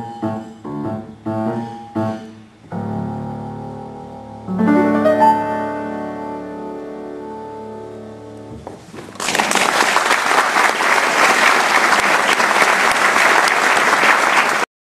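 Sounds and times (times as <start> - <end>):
piano chord ringing: 0.0 - 8.6
audience applauding: 9.0 - 14.7.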